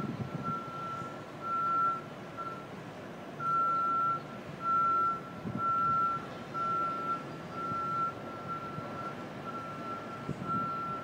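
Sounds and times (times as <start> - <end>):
low city rumble: 0.0 - 11.0
backup alarm beeping: 3.4 - 11.0.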